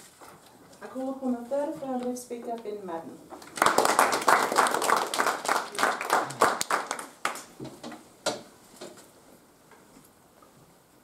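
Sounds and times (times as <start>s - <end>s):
people clapping: 3.4s - 7.6s.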